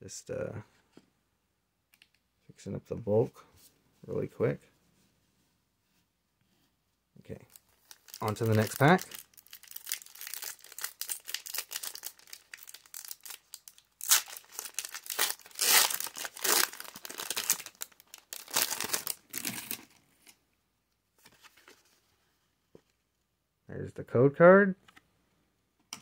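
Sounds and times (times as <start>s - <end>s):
foil wrapper crinkling: 7.5s - 19.9s
foil wrapper ripping: 7.8s - 19.8s.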